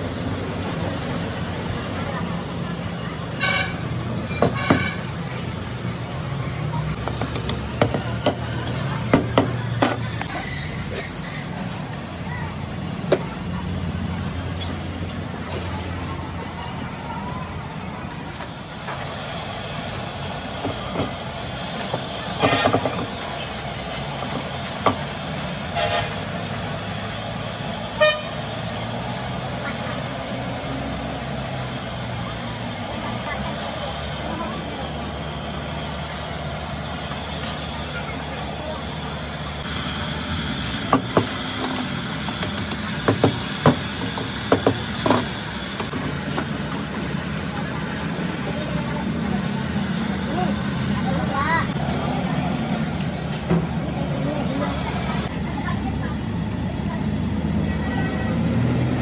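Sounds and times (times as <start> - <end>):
traffic engine hum: 0.0 - 59.0
vehicle horn toots: 3.4 - 3.8, 25.7 - 26.2, 28.0 - 28.4.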